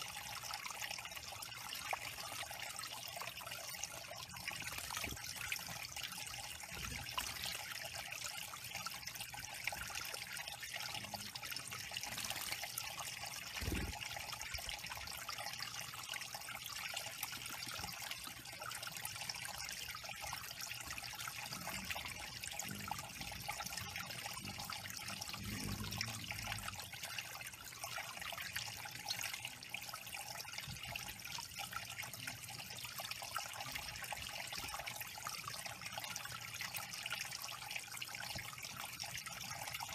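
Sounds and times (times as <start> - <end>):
waterfall trickling over stones: 0.0 - 39.9.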